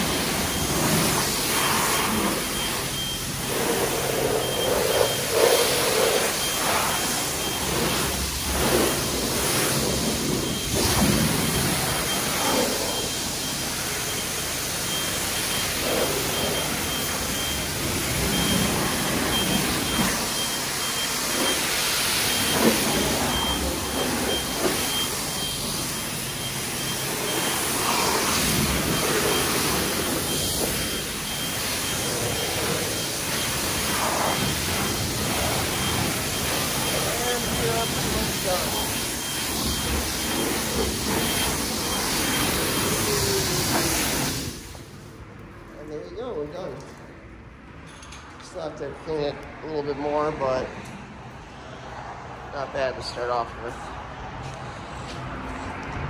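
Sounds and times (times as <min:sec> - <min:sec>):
faint high beep: 0:00.0 - 0:09.0, 0:09.6 - 0:44.0
pressure wand spraying water: 0:00.0 - 0:45.0.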